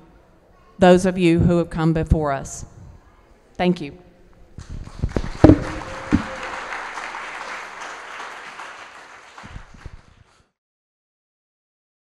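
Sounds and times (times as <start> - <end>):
audience applauding: 4.6 - 10.5.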